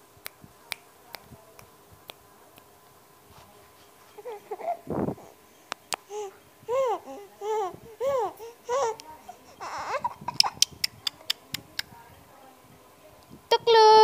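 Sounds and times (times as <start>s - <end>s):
baby cooing: 4.2s - 5.4s, 6.1s - 10.6s.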